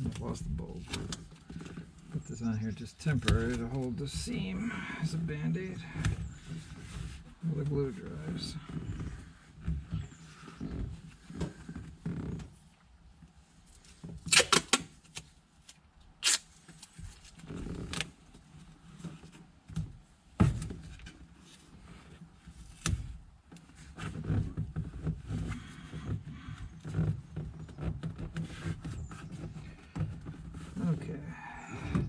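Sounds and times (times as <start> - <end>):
tape ripping off a roll: 13.8 - 18.2.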